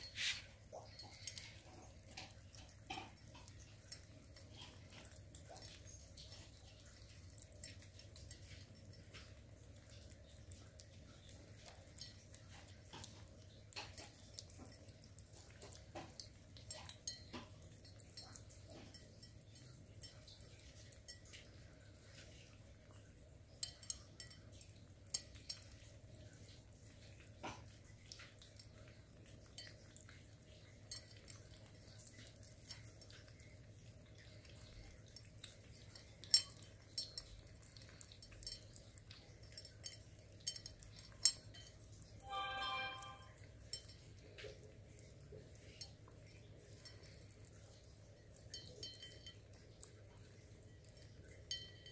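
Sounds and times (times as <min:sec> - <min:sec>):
teeth knocking metal bowls: 0:00.0 - 0:22.0, 0:23.4 - 0:42.2
kittens chewing and licking: 0:00.0 - 0:51.9.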